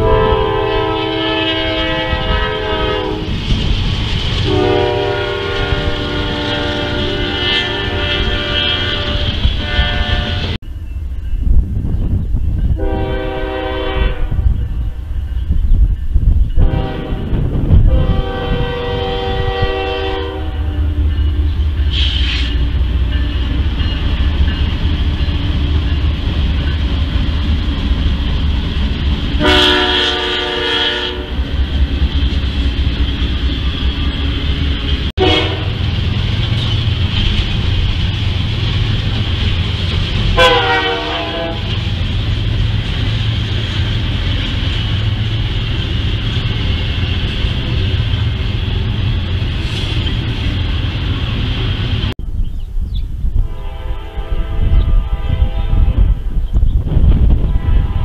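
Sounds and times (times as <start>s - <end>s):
locomotive air horn blasts: 0.0s - 3.3s, 4.4s - 10.6s, 12.8s - 14.5s, 16.6s - 21.1s, 29.4s - 31.5s, 35.2s - 35.8s, 40.3s - 41.8s, 53.4s - 56.1s, 57.4s - 58.0s
freight train rumbling past: 0.0s - 58.0s.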